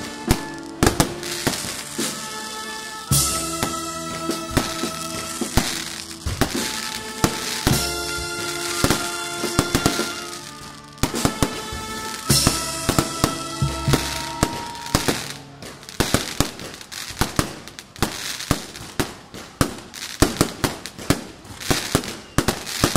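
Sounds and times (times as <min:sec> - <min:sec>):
music with long held chords: 0:00.0 - 0:17.1
fireworks bangs and crackling: 0:00.0 - 0:22.9.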